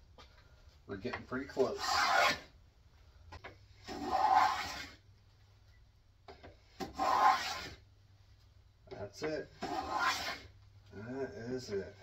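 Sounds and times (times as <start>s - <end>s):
plane scraping wood: 1.5s - 2.5s, 3.8s - 5.0s, 6.8s - 7.8s, 9.6s - 10.5s.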